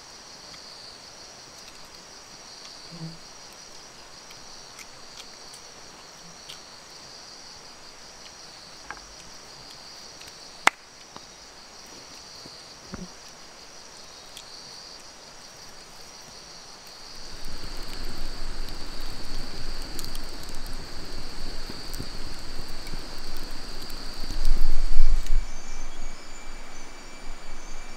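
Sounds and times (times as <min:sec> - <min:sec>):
crickets chirping: 0:00.0 - 0:27.9
campfire crackling: 0:00.4 - 0:27.9
low rumble: 0:17.2 - 0:27.9.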